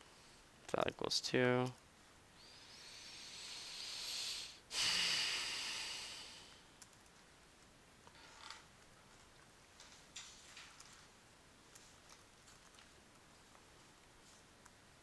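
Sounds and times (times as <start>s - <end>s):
breathing close to microphone: 2.4s - 6.6s.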